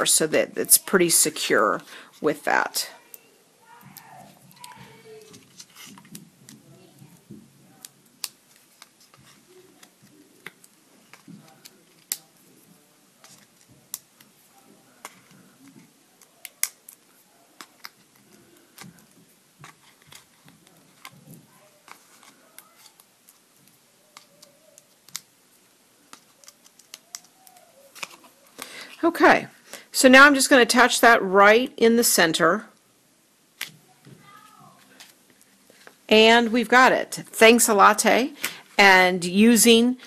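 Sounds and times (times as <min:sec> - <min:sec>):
paper clicks and crackles: 0:03.9 - 0:25.3, 0:26.0 - 0:28.7.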